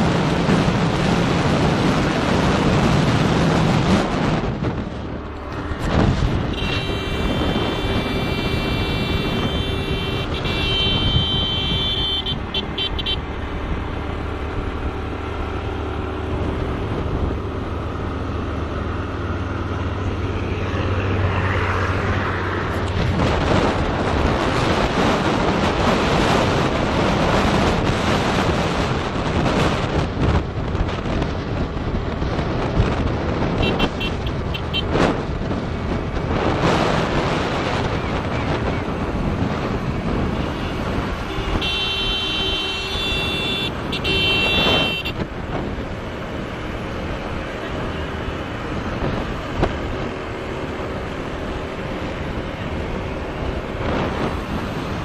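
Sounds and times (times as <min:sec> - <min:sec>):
vehicle engine and road noise: 0:00.0 - 0:55.0
vehicle horn: 0:06.3 - 0:13.3, 0:33.6 - 0:35.0, 0:40.3 - 0:45.3.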